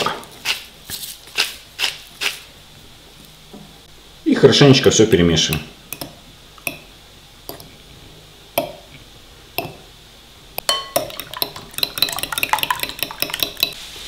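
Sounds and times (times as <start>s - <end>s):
fork clinking against glass bowl: 10.6s - 13.8s.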